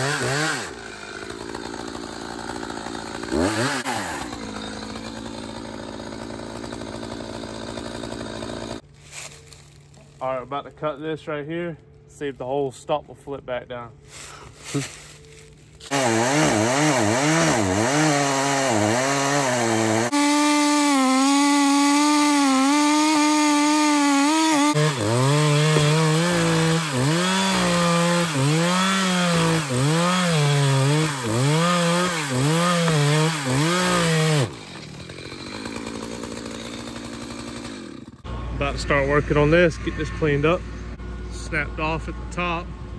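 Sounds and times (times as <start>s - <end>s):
chainsaw cutting wood: 0.0s - 9.3s, 15.8s - 38.3s.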